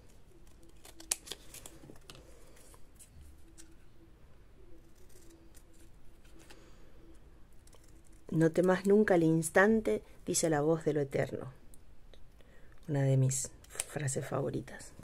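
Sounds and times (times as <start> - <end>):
paper rustling: 0.0 - 3.8
scissors cutting paper: 0.3 - 2.2, 4.7 - 6.5.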